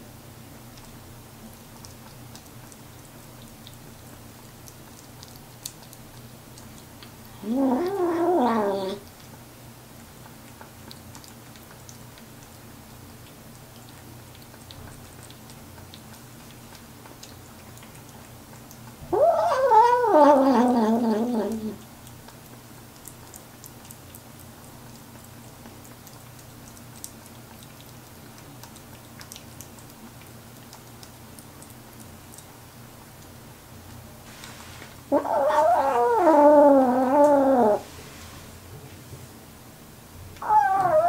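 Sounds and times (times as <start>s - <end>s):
kitten chewing and licking: 0.0s - 38.0s, 39.0s - 41.0s
kitten growly cry: 7.4s - 9.0s, 19.1s - 21.8s, 35.1s - 37.8s, 40.4s - 41.0s.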